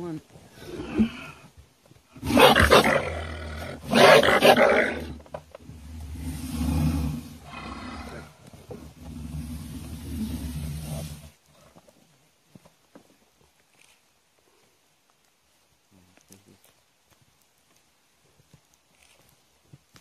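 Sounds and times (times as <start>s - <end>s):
wild animal growling: 0.5s - 1.5s, 2.2s - 11.7s.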